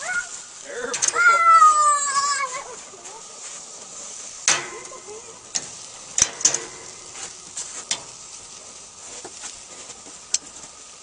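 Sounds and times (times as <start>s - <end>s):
meat sizzling on a grill: 0.0s - 11.0s
metal tongs clicking on grate: 0.9s - 1.2s, 4.4s - 8.4s.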